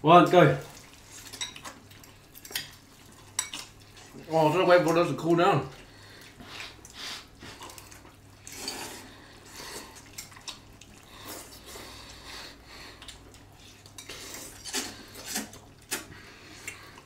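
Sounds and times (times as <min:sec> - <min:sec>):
noodle slurping: 0:05.9 - 0:17.0.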